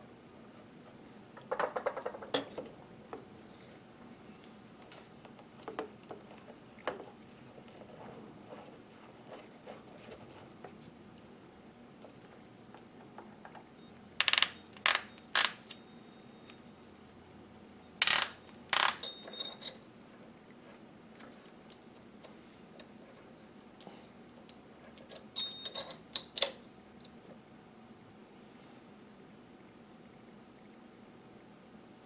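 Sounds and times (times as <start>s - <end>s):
small steel parts clinking: 14.2s - 15.8s, 18.0s - 19.8s, 25.1s - 26.5s.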